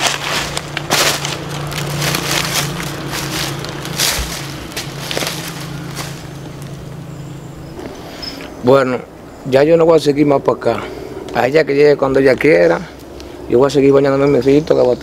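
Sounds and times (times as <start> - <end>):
footsteps crunching dry leaves: 0.0 - 8.0
steady low hum: 0.0 - 14.4.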